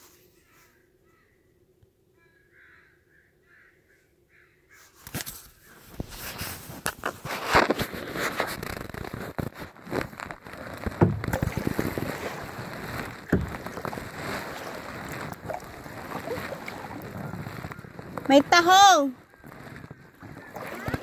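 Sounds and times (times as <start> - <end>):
wind noise on microphone: 5.9 - 21.0
paddle splashing water: 6.1 - 21.0.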